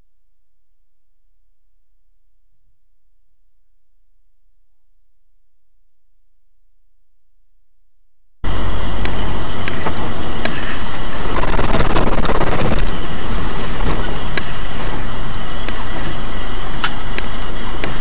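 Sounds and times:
vehicle driving on wet road: 8.5s - 18.0s.

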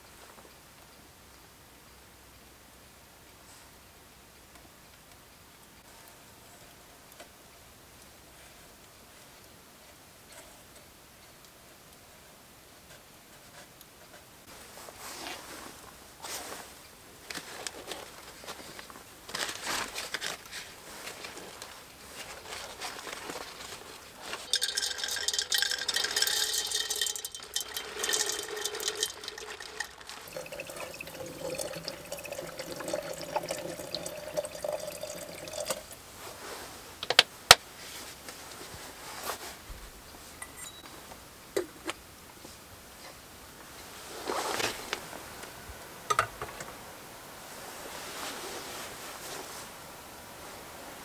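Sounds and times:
dry contents rustling: 14.8s - 36.7s
paper bag crinkling: 17.3s - 35.6s
liquid pouring into pot: 24.3s - 36.0s.

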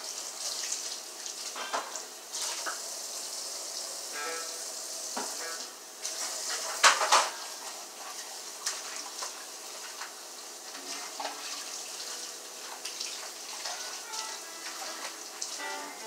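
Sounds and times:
dishes and utensils clattering: 1.5s - 2.7s, 6.5s - 7.5s.

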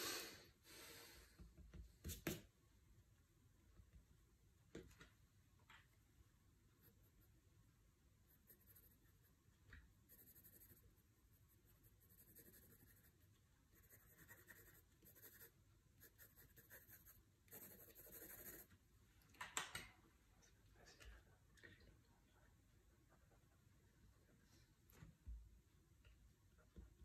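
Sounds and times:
pencil scratching on paper: 8.3s - 9.3s, 10.0s - 18.7s.

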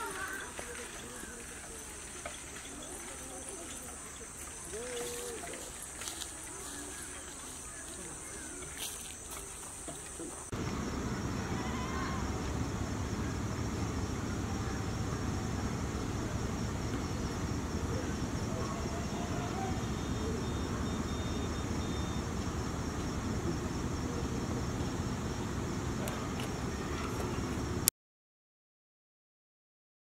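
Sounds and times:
low outdoor rumble: 0.0s - 27.9s
faint high chirp: 19.6s - 22.3s.

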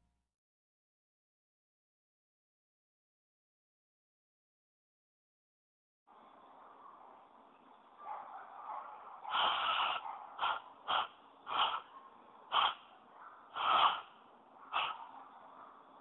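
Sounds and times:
airy puffs through cupped hands: 9.3s - 11.8s, 12.5s - 12.9s.

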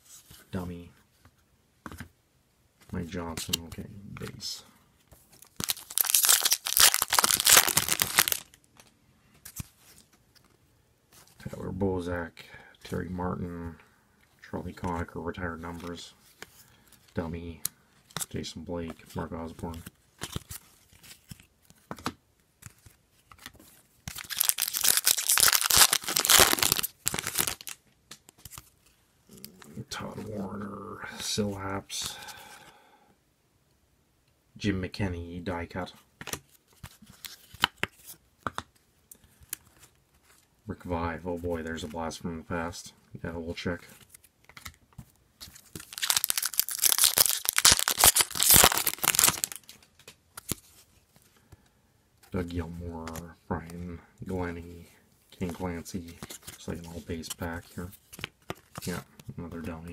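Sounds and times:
foil wrapper tearing and crinkling: 5.4s - 8.6s, 24.1s - 27.8s, 45.6s - 49.7s.

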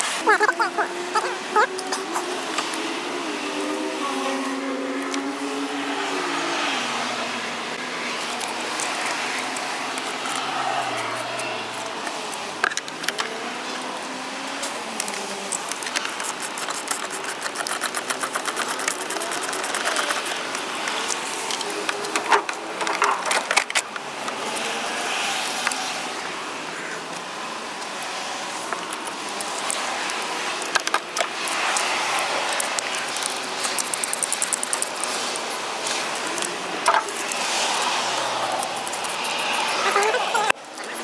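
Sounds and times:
rapid clicking: 15.0s - 22.3s, 28.7s - 41.0s.

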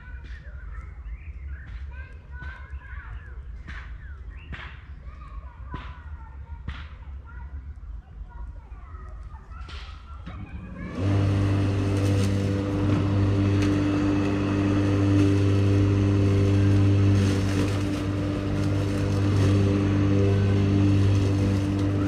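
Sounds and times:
engine running low hum: 10.2s - 22.0s.

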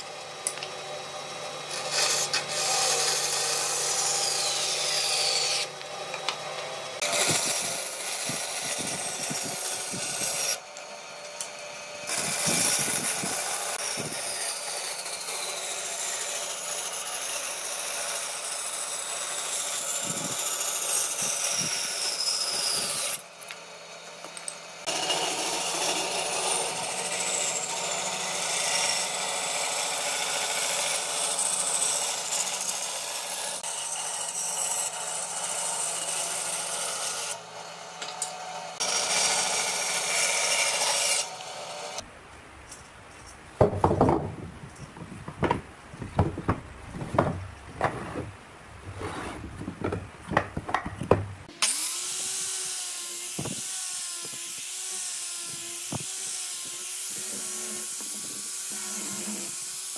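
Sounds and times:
angle grinder sanding wood: 0.0s - 42.1s, 51.4s - 59.9s
band saw cutting wood: 0.0s - 42.1s, 51.4s - 59.9s
sharp knocks: 43.6s - 44.5s, 45.3s - 48.3s, 49.8s - 51.5s.

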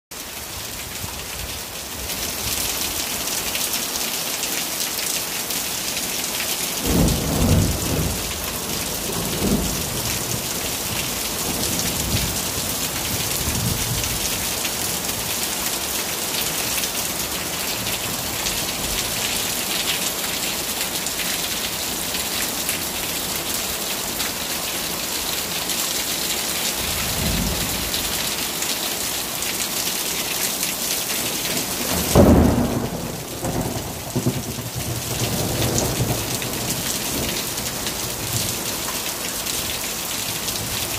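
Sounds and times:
rain on a wooden deck: 0.1s - 40.9s
thunder rumbling: 6.8s - 12.4s, 31.8s - 37.3s.

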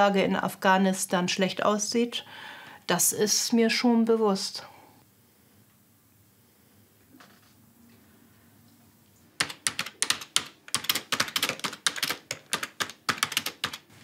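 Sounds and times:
fast typing on keyboard: 9.4s - 13.9s.

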